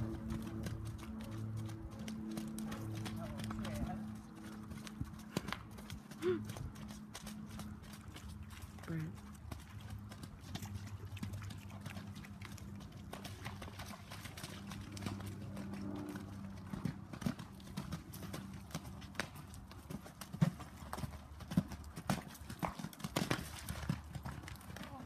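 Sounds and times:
horse hoofbeats on muddy ground: 0.0s - 25.0s.

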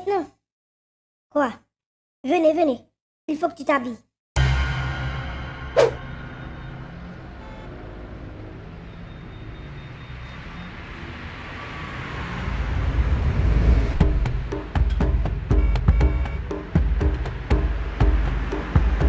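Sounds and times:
car driving past: 5.0s - 14.7s
light percussive beat: 14.0s - 19.0s.

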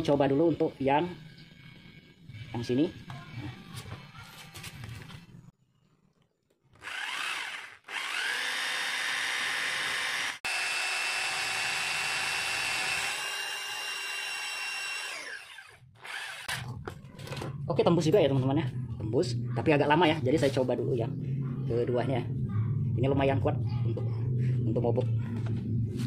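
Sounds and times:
rotary hammer drilling into wall: 6.8s - 16.6s.

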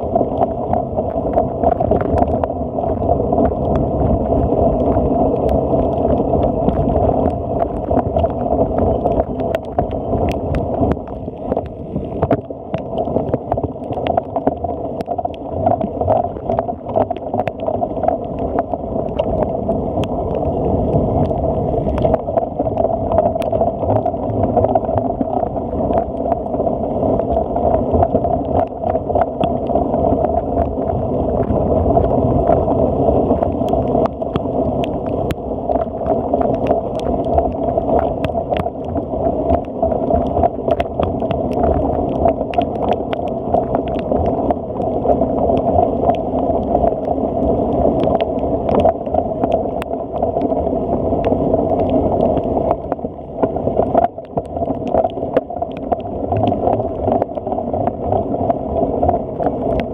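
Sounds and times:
wind rumble on microphone: 0.0s - 59.9s.

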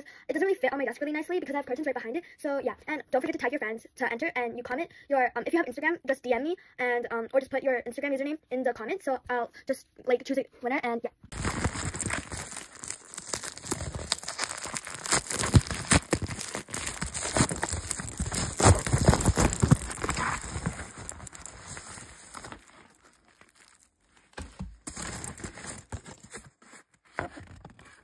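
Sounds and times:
packaging crinkling and rustling: 11.3s - 28.0s.

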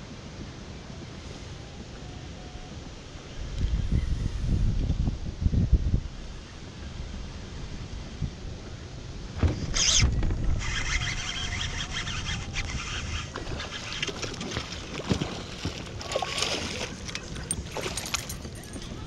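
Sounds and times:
fish splashing in water: 13.2s - 18.4s.

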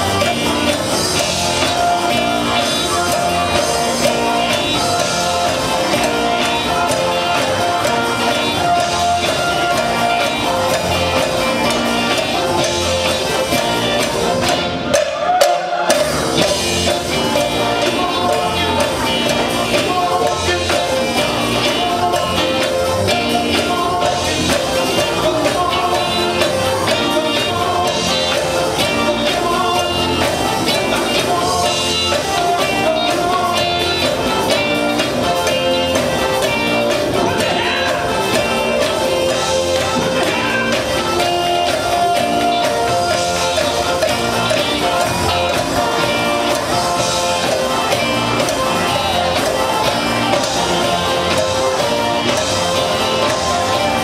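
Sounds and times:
bass: 0.0s - 54.0s
drum kit: 0.0s - 54.0s
electric guitars: 0.0s - 54.0s
keyboard: 0.0s - 54.0s
person singing: 0.0s - 54.0s.

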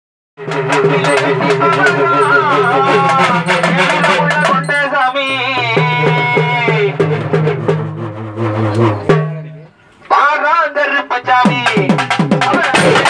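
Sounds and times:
hourglass drums wavering pitch: 0.4s - 6.5s
barrel drum beats: 0.4s - 9.7s, 11.4s - 13.0s.

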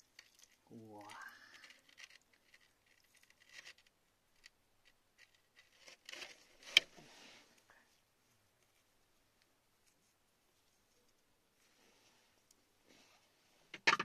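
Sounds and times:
stones clicking: 0.0s - 6.9s
stones rubbing and scraping on rock: 0.0s - 7.4s.

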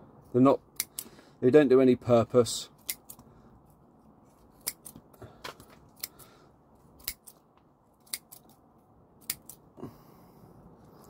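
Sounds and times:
scissors snipping roots: 0.7s - 1.1s, 2.8s - 3.3s, 4.5s - 6.3s, 7.0s - 7.4s, 8.0s - 8.6s, 9.2s - 9.7s.

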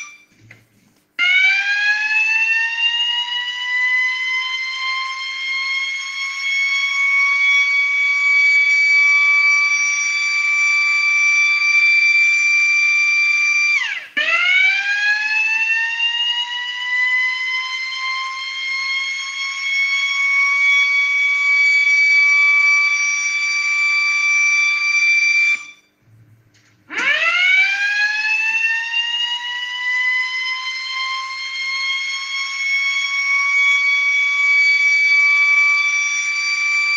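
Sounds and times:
rotor siren wailing: 0.0s - 0.4s, 1.2s - 26.0s, 26.9s - 36.9s.

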